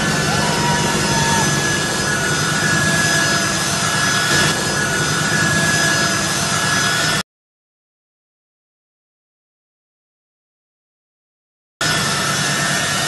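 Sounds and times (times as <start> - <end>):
jet engines roaring: 0.0 - 7.2, 11.8 - 13.0.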